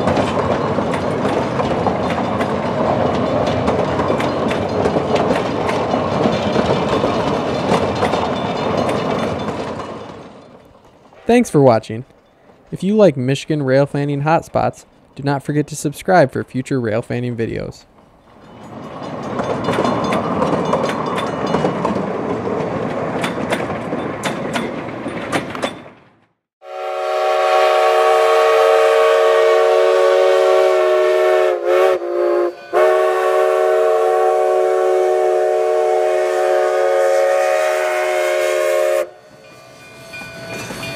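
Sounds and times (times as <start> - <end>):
train wheel clicks: 0.0 - 13.0, 17.9 - 26.3, 39.3 - 40.9
train rumbling: 0.0 - 40.9
locomotive horn blast: 26.6 - 39.2.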